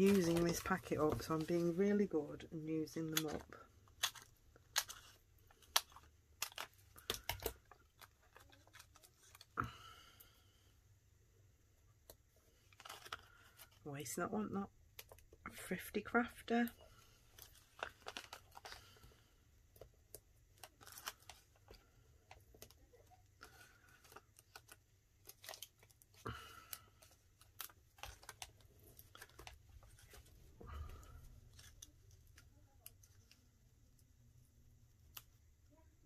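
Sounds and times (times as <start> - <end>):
paper rustling: 0.0 - 2.0.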